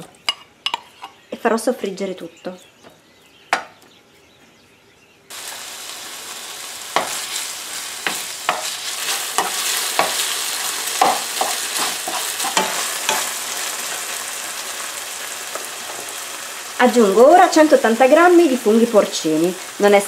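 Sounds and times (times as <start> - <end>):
sausage sizzling in frying pan: 5.3 - 20.0
wooden spoon scraping pan: 7.0 - 13.3.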